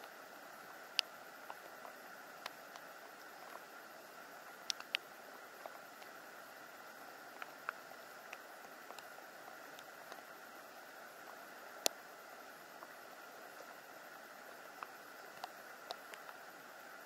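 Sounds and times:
faint outdoor hiss: 0.0s - 17.0s
small ticks: 0.0s - 17.0s.

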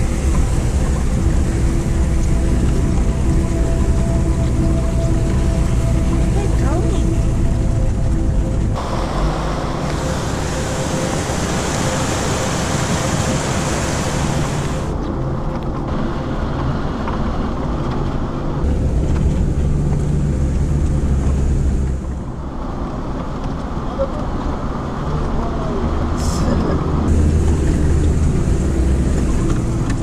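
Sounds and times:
car engine and road rumble: 0.0s - 30.0s
high rushing noise: 8.8s - 15.0s.

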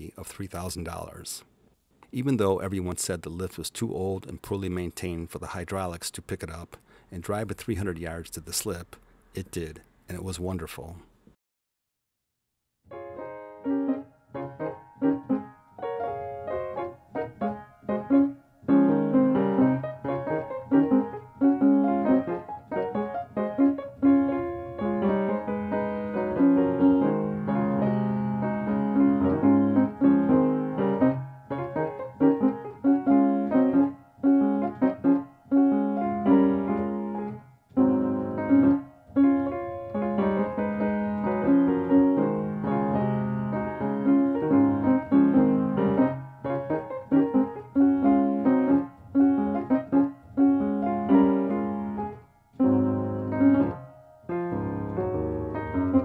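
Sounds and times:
piano music: 12.9s - 56.0s.

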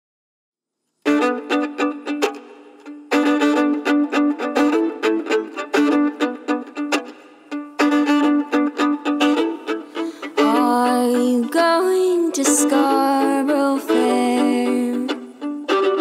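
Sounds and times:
fiddle: 1.0s - 16.0s
plucked strings: 1.0s - 16.0s.

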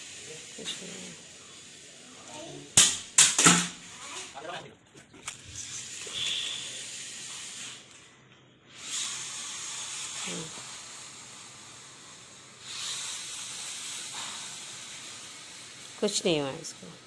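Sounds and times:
steady hiss: 0.0s - 4.6s, 5.4s - 8.0s, 8.7s - 17.0s.

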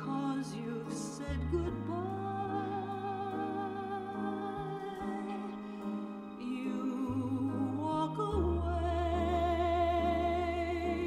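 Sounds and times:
piano: 0.0s - 11.0s
low bass notes: 1.3s - 5.2s, 7.0s - 11.0s.

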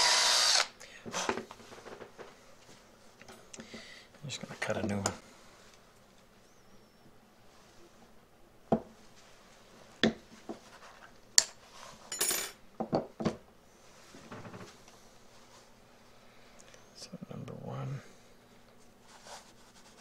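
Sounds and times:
hard objects clinking on workbench: 12.1s - 12.6s.

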